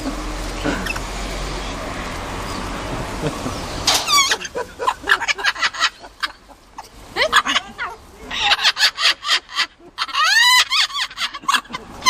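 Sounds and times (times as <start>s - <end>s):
parrot cackling: 0.7s - 1.1s, 3.5s - 12.0s
parrot squawk: 8.3s - 11.5s.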